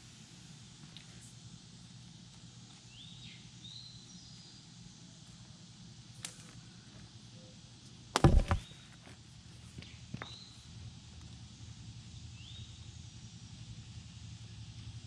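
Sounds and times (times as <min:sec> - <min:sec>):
sharp knocks and rattles: 0:08.2 - 0:08.7.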